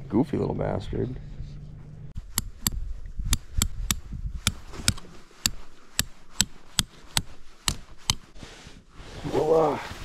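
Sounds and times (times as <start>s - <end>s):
tent stake being hammered: 2.2s - 8.3s.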